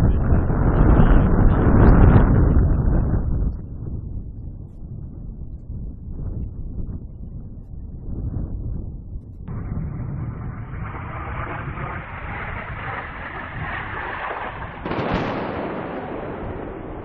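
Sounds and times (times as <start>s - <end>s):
distant explosion rumble: 9.3s - 17.0s
sharp blast: 9.5s - 17.0s.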